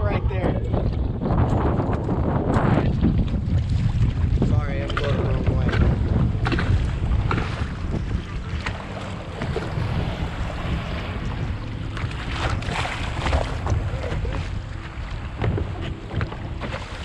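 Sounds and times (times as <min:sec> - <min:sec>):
waves slapping against a hull: 0:00.0 - 0:17.0
wind buffeting microphone: 0:00.0 - 0:17.0.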